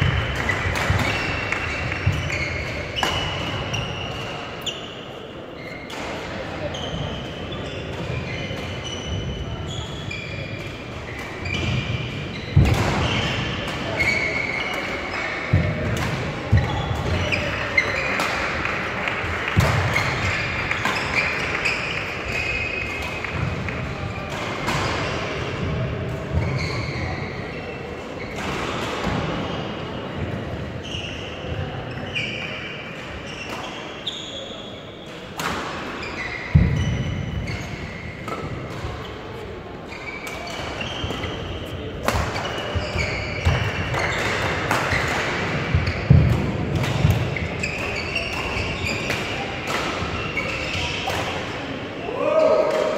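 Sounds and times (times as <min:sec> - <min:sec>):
racket hitting shuttlecock: 0:00.0 - 0:04.3, 0:10.6 - 0:17.4, 0:19.5 - 0:25.8, 0:40.2 - 0:51.6
shoes squeaking on floor: 0:00.0 - 0:05.9, 0:06.6 - 0:15.8, 0:16.4 - 0:18.2, 0:19.9 - 0:23.4, 0:26.2 - 0:28.4, 0:30.8 - 0:35.2, 0:35.8 - 0:51.1
voices in hall: 0:00.0 - 0:52.9.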